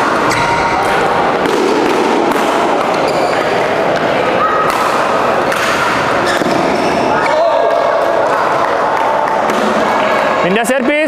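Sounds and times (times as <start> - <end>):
racket hitting shuttlecock: 0.0 - 7.3
sports hall chatter: 0.0 - 11.0
shoe squeak on court: 3.0 - 3.6, 6.2 - 7.1.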